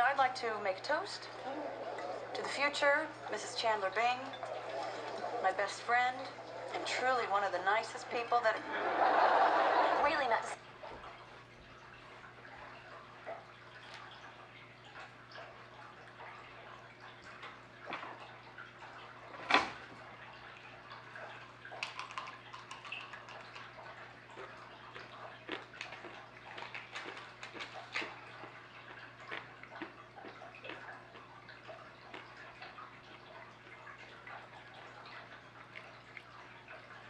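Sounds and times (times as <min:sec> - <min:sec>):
water drips and splashes: 0:00.0 - 0:08.6, 0:10.0 - 0:37.0
low hum: 0:00.0 - 0:12.0
tap water trickling into tank: 0:00.0 - 0:37.0.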